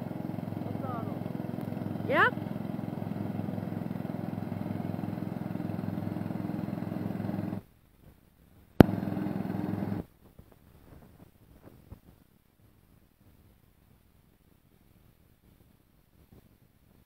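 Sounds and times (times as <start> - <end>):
garden tractor engine running: 0.0 - 7.6, 8.8 - 10.1.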